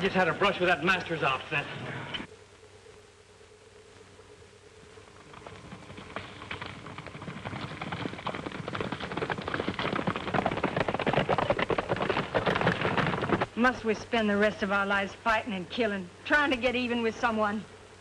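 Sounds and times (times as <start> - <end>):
horses galloping on dry ground: 4.9 - 14.8.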